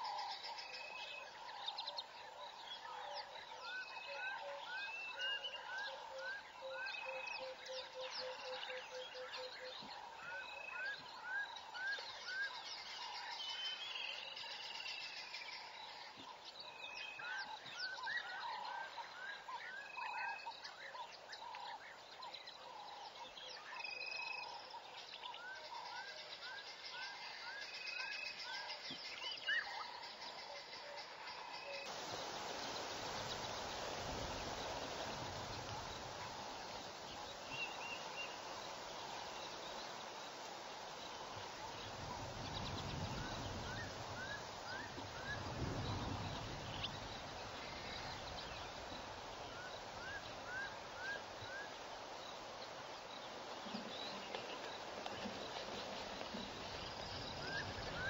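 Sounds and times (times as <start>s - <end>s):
insects hissing: 31.2s - 58.0s.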